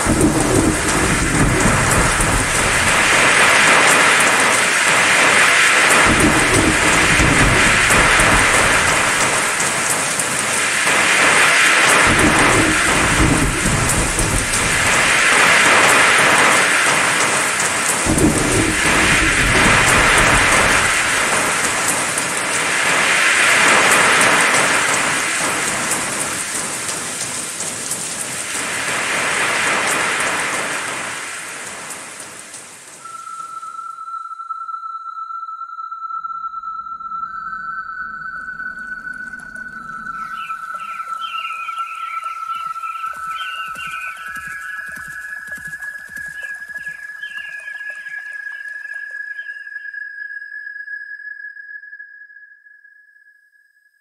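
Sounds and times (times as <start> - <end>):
low rumbles of thunder: 0.0 - 32.0
heavy rain: 0.0 - 33.6, 38.4 - 49.5.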